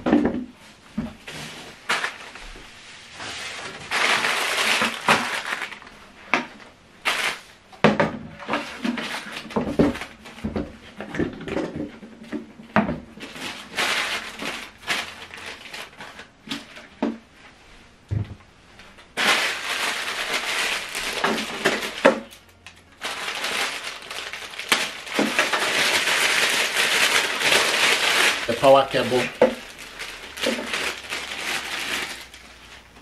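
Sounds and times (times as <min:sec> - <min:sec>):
plastic packaging crinkling: 0:01.8 - 0:02.5, 0:03.2 - 0:06.0, 0:07.0 - 0:07.6, 0:08.4 - 0:10.4, 0:13.1 - 0:16.9, 0:19.1 - 0:33.0.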